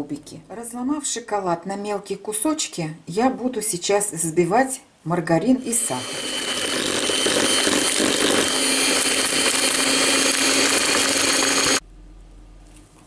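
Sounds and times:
electric hand mixer whining: 5.4 - 11.8.

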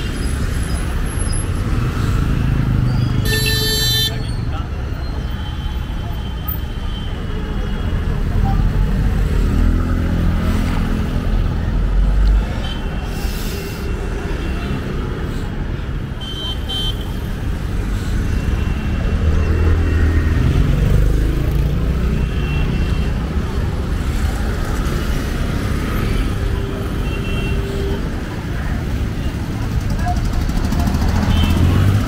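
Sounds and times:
motorbikes and cars passing: 0.0 - 3.4, 7.9 - 15.7, 17.0 - 27.1, 27.7 - 32.0.

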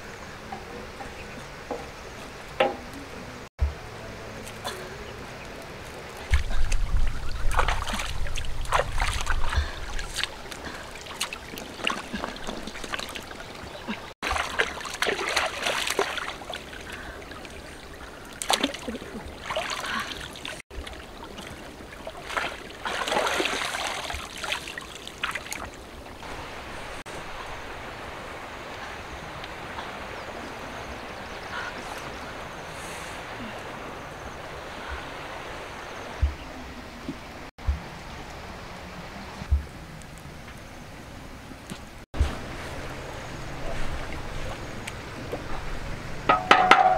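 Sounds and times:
stream trickling: 0.0 - 46.9
hands splashing water: 6.3 - 17.6, 18.3 - 25.8.

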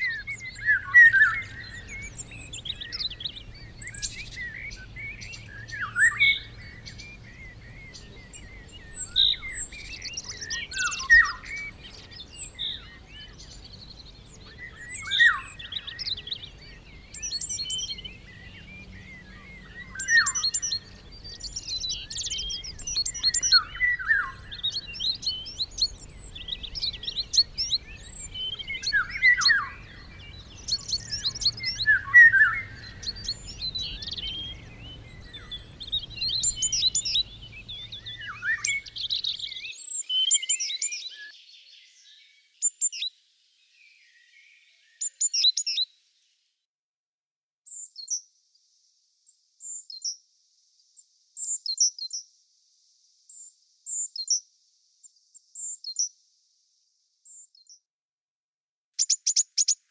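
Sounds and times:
bird song sweeping down: 0.0 - 45.8
songbirds chorus: 0.0 - 46.4.

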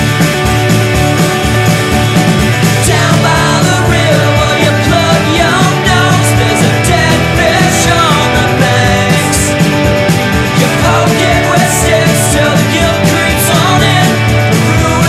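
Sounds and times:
bass: 0.0 - 15.0
drums: 0.0 - 15.0
guitars: 0.0 - 15.0
person singing: 2.6 - 9.7, 10.4 - 15.0.

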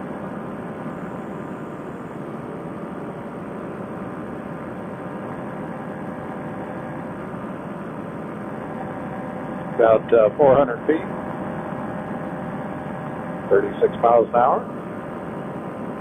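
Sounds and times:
paramotor engine drone: 0.0 - 16.0.

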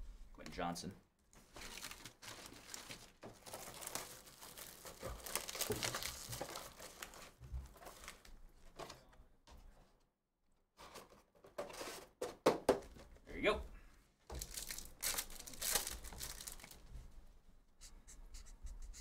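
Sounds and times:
wrappers crinkling and tearing: 1.4 - 8.3, 14.3 - 16.9.

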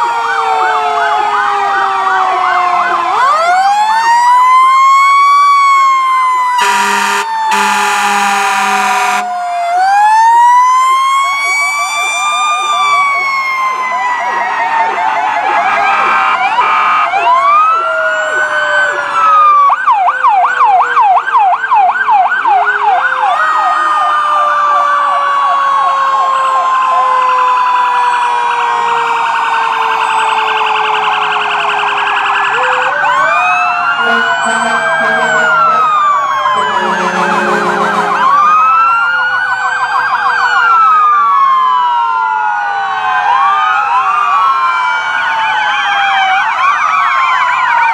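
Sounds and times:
sirens wailing and yelping: 0.0 - 47.9
horn blast: 6.6 - 9.3, 34.0 - 38.8.

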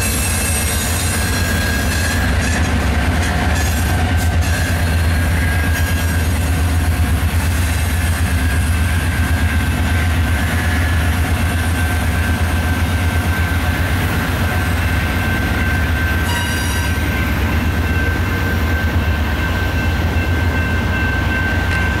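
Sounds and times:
high wheel squeal: 0.0 - 6.4
train wheels rumbling on rails: 0.0 - 22.0.

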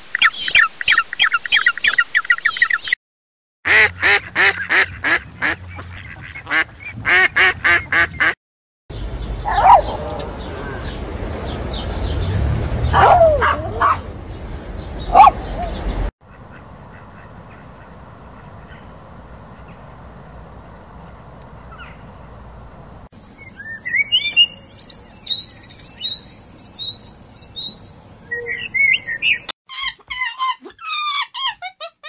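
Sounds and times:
puppy yipping and barking: 9.4 - 10.3, 12.9 - 14.0, 15.1 - 15.8, 29.7 - 32.0
bird singing high twittering: 23.2 - 29.5.

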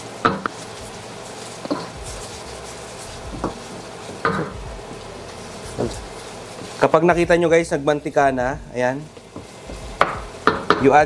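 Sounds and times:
oil sizzling: 0.0 - 11.0
wooden spoon stirring in wok: 0.0 - 11.0
spoon knocking against pan: 9.4 - 10.9.

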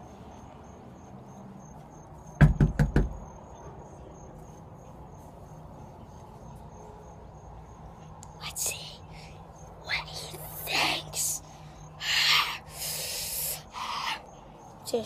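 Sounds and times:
knocks on a door: 2.4 - 3.2.

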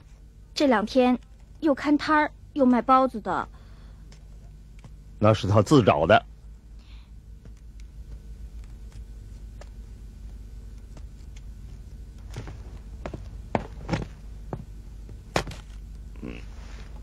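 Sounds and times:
low steady hum: 0.0 - 17.0
footsteps and knocks on floor: 11.7 - 15.6.

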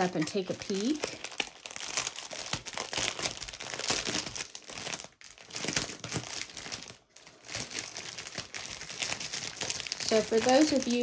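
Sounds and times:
plastic packets crinkling: 0.0 - 11.0.

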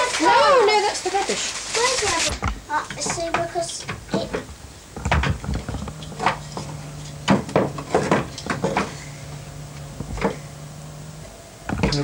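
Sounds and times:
low steady hum: 2.4 - 12.0
wooden blocks clattering: 2.9 - 9.0.

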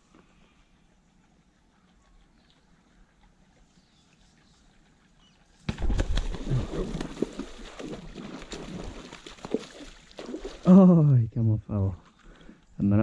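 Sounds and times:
fish splashing at surface: 5.7 - 10.7.

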